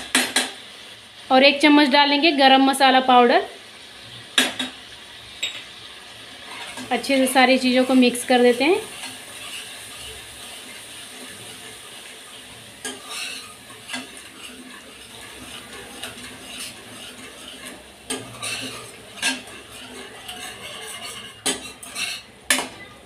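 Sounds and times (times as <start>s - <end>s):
spatula scraping and knocking pan: 0.0s - 0.6s, 6.4s - 22.8s
faint sizzle: 0.0s - 23.0s.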